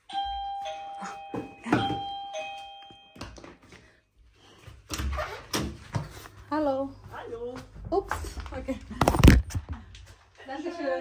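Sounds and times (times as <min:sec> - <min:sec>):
two-tone doorbell chime: 0:00.0 - 0:03.5.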